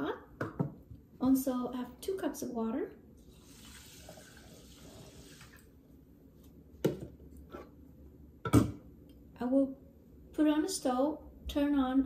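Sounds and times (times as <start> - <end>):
water pouring onto rice in saucepan: 3.2 - 5.7.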